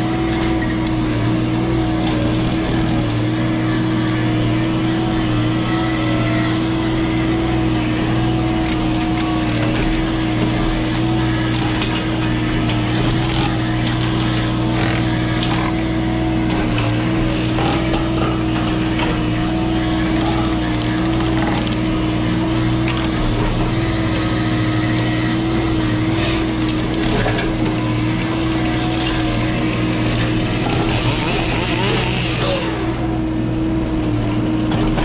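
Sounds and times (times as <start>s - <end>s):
excavator machine drone: 0.0s - 35.0s
wood cracking and splintering: 1.9s - 3.3s, 8.1s - 33.1s.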